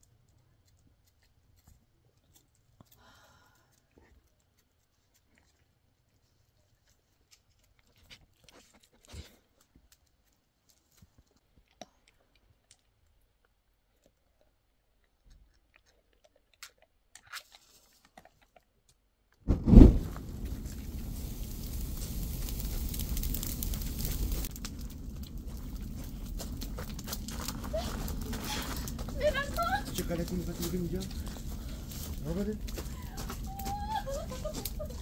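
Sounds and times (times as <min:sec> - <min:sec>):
faint clicks and crunches: 0:00.0 - 0:19.4, 0:20.2 - 0:35.0
fire burning: 0:19.4 - 0:35.0
brushwood bursting into flame: 0:19.5 - 0:35.0.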